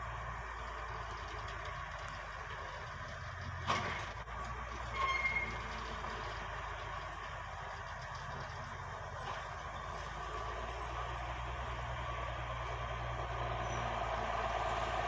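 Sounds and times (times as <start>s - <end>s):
excavator engine running: 0.0s - 15.0s
brief high squeal: 4.9s - 5.7s.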